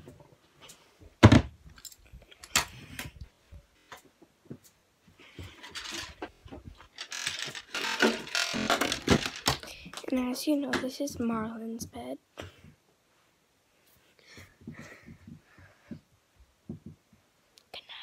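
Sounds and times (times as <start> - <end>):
plastic toys clicking and clattering: 5.4 - 10.1.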